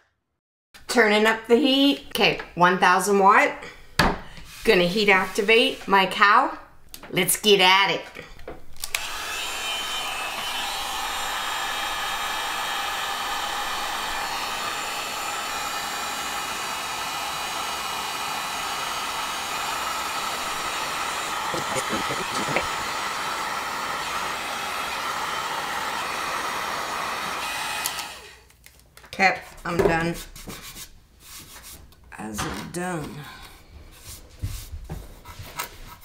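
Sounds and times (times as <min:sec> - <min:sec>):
heat gun blowing air: 0:08.8 - 0:28.5.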